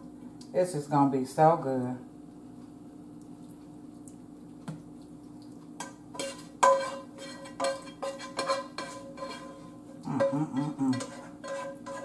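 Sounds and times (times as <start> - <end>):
faint steady hum: 0.0 - 12.0
metal tongs clinking on skillet: 5.8 - 12.0.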